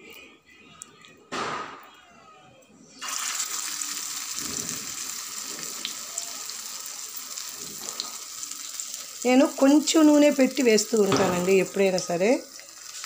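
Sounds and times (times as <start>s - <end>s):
batter sizzling in hot oil: 3.0s - 13.0s.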